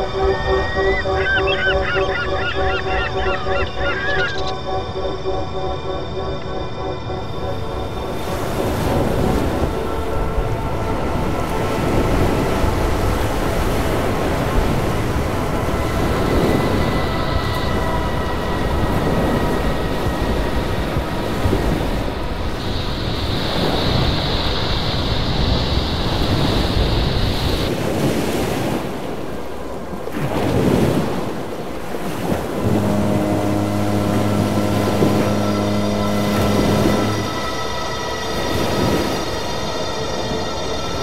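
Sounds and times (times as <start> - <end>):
steady low horn tone: 0.0 - 22.7, 31.8 - 41.0
wind on microphone: 7.8 - 41.0.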